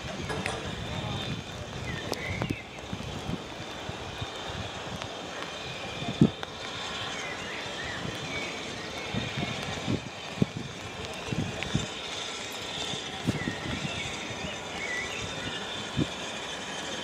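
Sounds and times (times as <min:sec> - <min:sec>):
steam locomotive knocking and clanking: 0:00.0 - 0:01.9
steady steam hiss: 0:00.0 - 0:17.0
birds chirping: 0:06.5 - 0:17.0.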